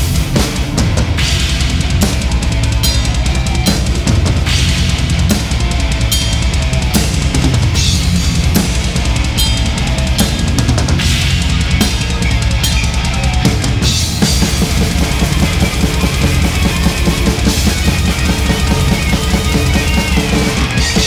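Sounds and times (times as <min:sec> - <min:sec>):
fast metal drumming: 0:00.0 - 0:21.0
rapid double bass drum strokes: 0:00.0 - 0:21.0
cymbals crashing: 0:07.9 - 0:13.2.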